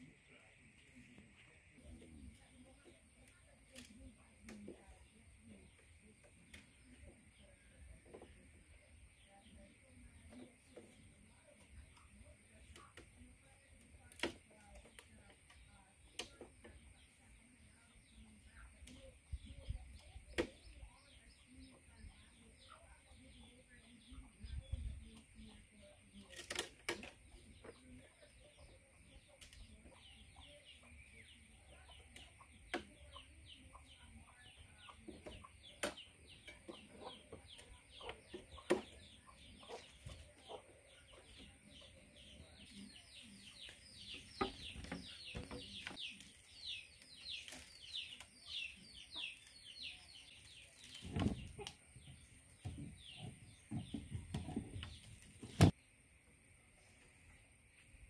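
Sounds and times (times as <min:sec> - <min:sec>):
chickens peeping: 0:27.2 - 0:55.8.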